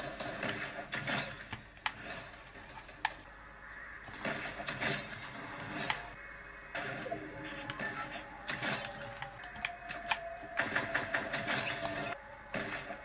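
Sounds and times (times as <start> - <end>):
shooter game sound effects: 4.0 - 13.0.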